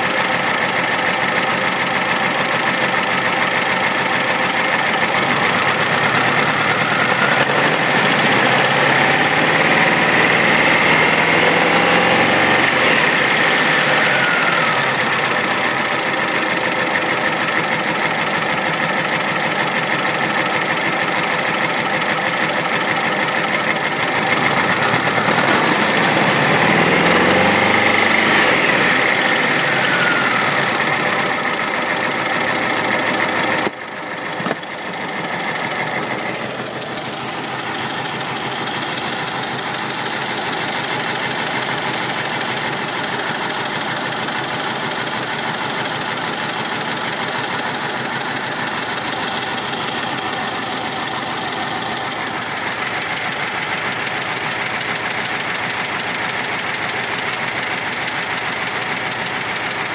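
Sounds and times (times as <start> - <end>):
car engine revving: 4.8 - 20.0, 23.6 - 59.9.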